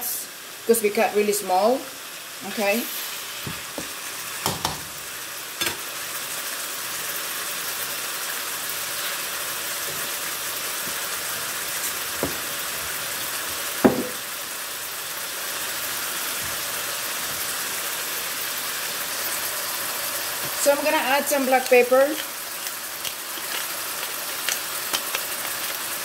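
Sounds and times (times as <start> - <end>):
chicken and onions sizzling in a wok: 0.0 - 26.0
spatula stirring: 20.4 - 26.0.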